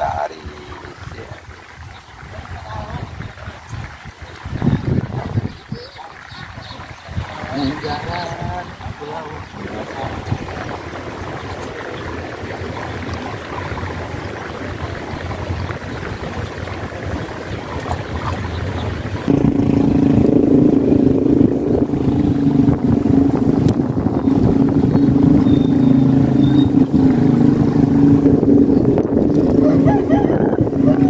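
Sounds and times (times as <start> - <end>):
wind on microphone: 0.0 - 31.0
loud motor hum: 7.1 - 31.0.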